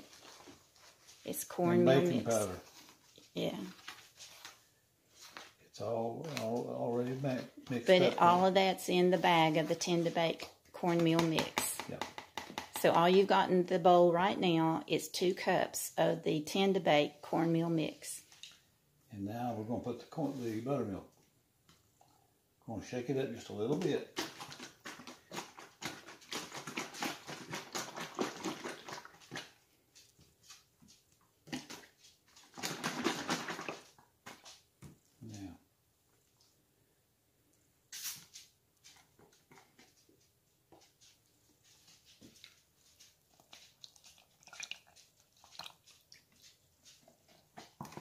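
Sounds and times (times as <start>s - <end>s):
soft handling sounds: 0.0s - 8.5s
liquid sloshing in plastic jug: 23.9s - 29.6s, 31.4s - 34.6s, 43.3s - 46.5s.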